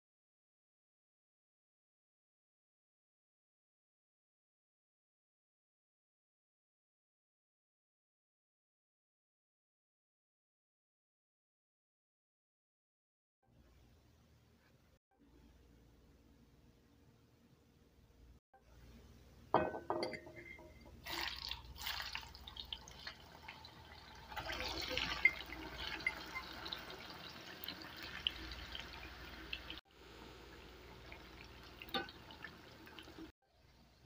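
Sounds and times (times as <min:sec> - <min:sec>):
food sizzling in hot oil: 0:21.0 - 0:33.3.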